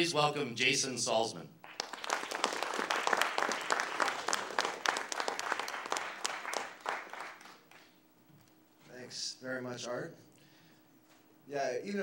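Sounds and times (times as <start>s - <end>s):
audience applauding: 1.6s - 8.0s.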